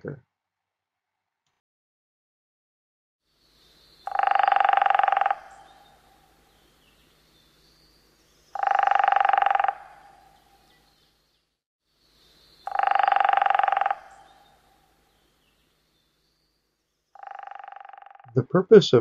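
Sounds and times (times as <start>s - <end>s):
faint high bird calls: 3.4s - 16.5s
woodpecker drumming on tree: 4.1s - 5.9s, 8.6s - 10.3s, 12.7s - 14.4s, 17.2s - 18.3s.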